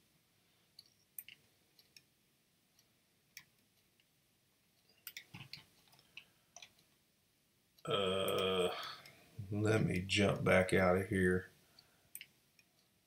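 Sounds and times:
scroll wheel ticks: 0.7 - 4.1, 4.8 - 7.0, 11.8 - 13.0
computer mouse clicks: 0.8 - 2.1, 4.8 - 7.0, 12.1 - 13.0.

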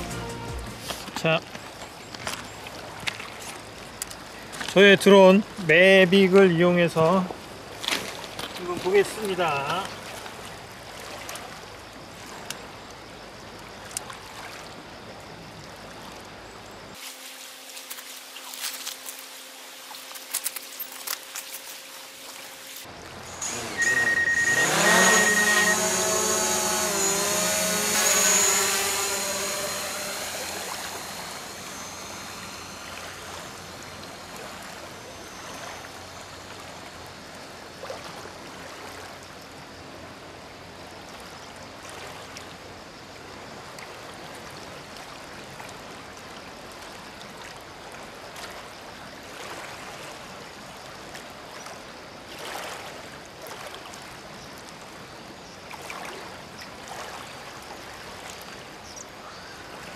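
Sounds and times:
rush of river water: 0.9 - 24.9, 32.9 - 59.9
drone propellers whining: 23.0 - 37.3.

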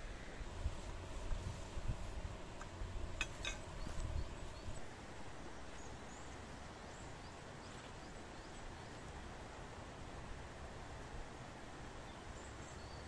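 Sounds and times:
tripod handling rumbles and knocks: 2.6 - 4.1.

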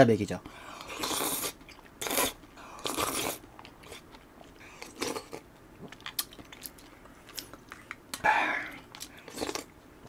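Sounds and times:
person slurping noodles: 0.8 - 3.4
chewing with small clicks: 1.6 - 10.0.

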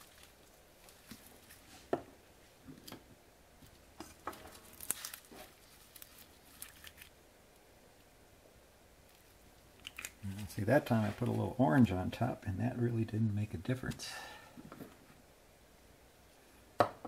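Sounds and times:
rustling: 0.0 - 7.2, 9.0 - 12.0.

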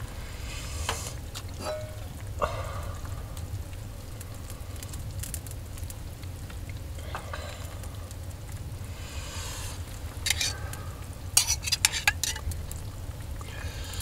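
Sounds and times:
food sizzling in a pan: 0.0 - 4.0, 6.8 - 14.0
wood fire crackling: 0.0 - 14.0
utensil scraping a pan: 10.2 - 10.7, 11.4 - 12.6.

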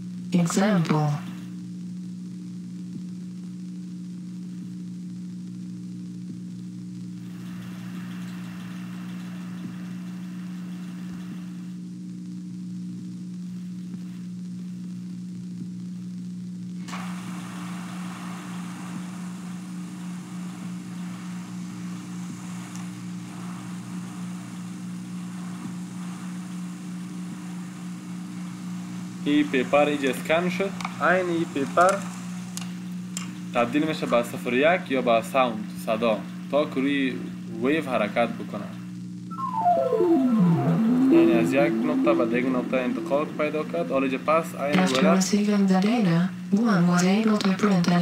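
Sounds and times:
electrical mains hum: 0.0 - 48.0
hiss: 16.8 - 30.7.

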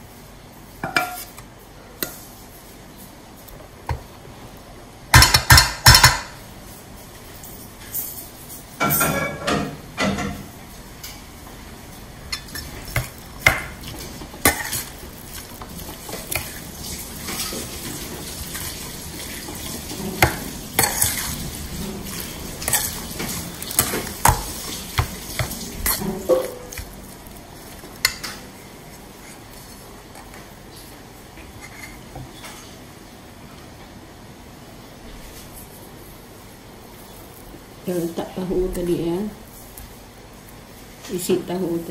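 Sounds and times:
spoon stirring in metal bowl: 12.3 - 30.5, 31.5 - 32.2.

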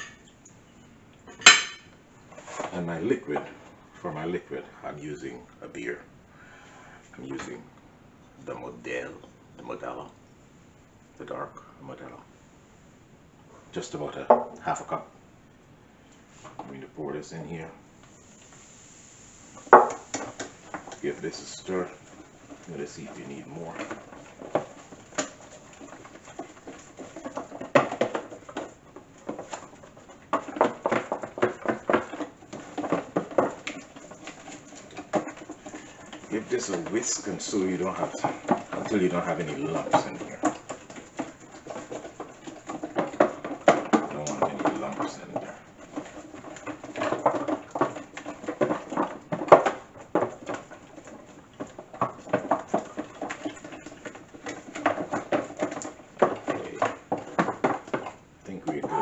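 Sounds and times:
whisk stirring batter: 19.6 - 59.0.

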